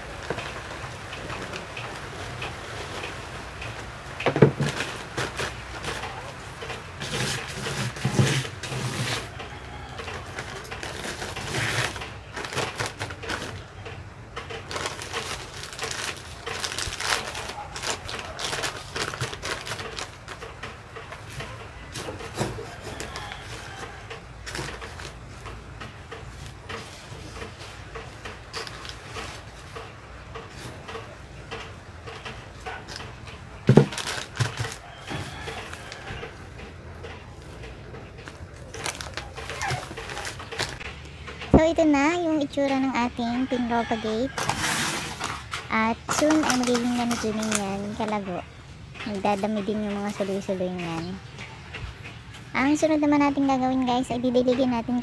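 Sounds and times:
plastic bag rustling: 0.0s - 13.8s, 14.5s - 30.9s, 32.5s - 36.5s, 38.2s - 41.0s, 43.9s - 48.2s.

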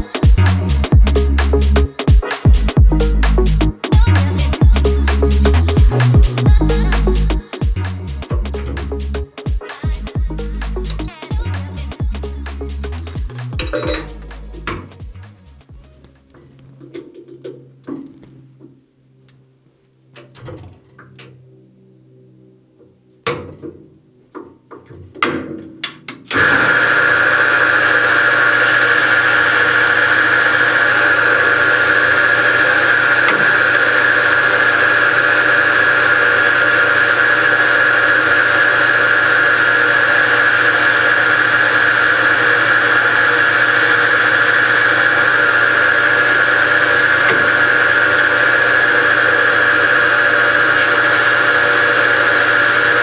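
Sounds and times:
lathe whining: 26.3s - 53.0s.

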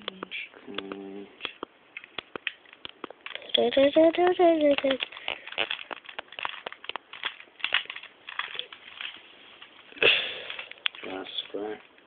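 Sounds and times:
puzzle cube clicking: 0.0s - 9.2s.

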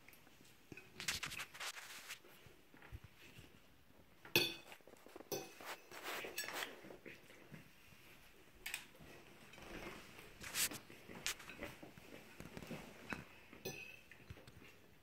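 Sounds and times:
chopsticks clinking on ceramic plates: 4.3s - 5.8s, 13.6s - 14.1s.

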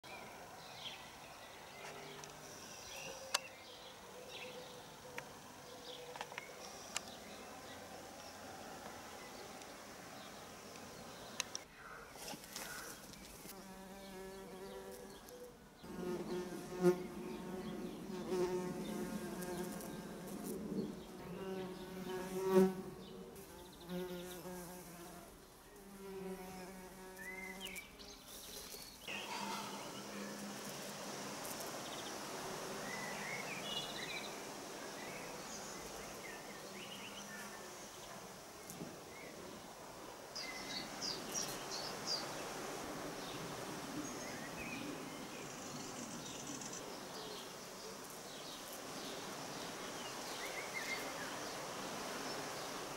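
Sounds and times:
bumblebees buzzing: 12.4s - 38.0s.

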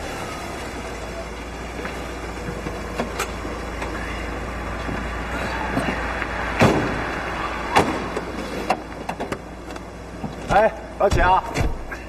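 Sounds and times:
car engine running: 0.0s - 12.0s
car doors thunking shut: 6.6s - 7.1s, 7.7s - 9.5s, 10.2s - 12.0s.

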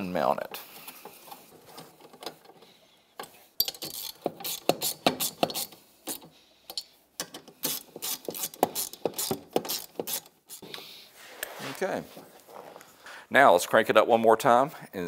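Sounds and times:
hand ratchet clicking: 3.2s - 10.7s.

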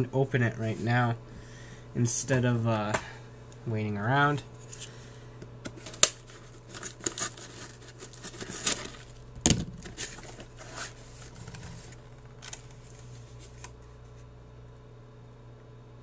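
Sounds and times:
packaging rustling and scraping: 5.7s - 9.2s, 9.8s - 13.8s.

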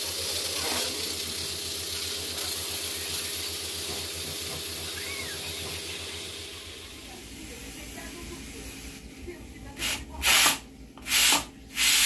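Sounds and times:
food hissing in a pan: 11.1s - 12.0s.

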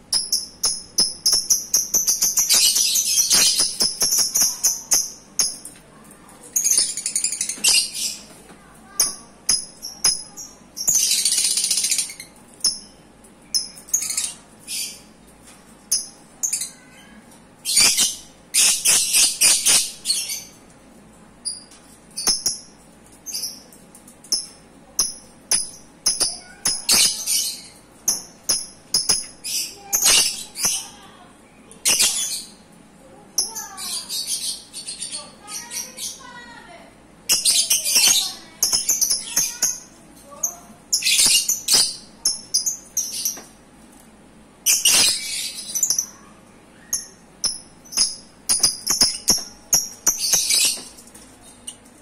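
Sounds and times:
lovebirds chirping: 0.0s - 12.9s, 44.7s - 52.0s.

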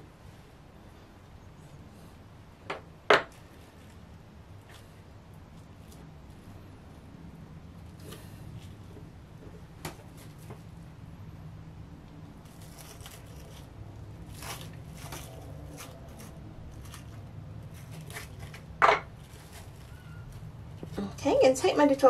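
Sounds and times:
cling film crinkling: 12.4s - 20.8s.

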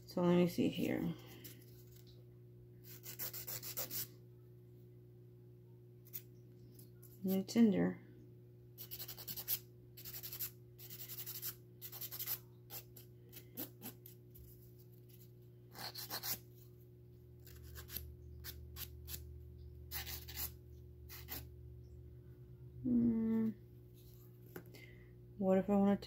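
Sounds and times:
nail tool scraping fingernail: 19.9s - 20.5s.

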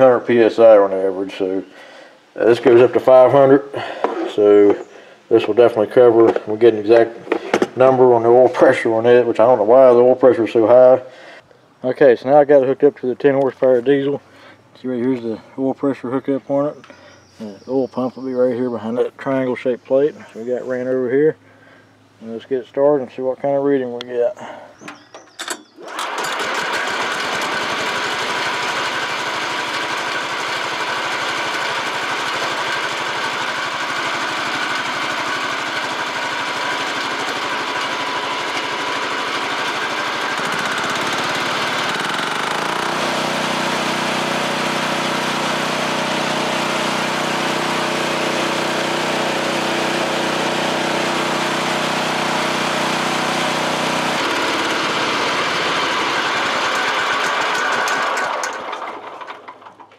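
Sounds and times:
diesel engine clattering: 49.9s - 59.9s.

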